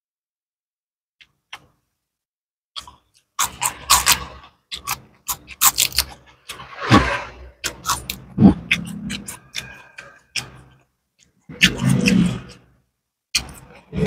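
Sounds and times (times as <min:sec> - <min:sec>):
chewing with wet crunches: 0:07.6 - 0:12.1.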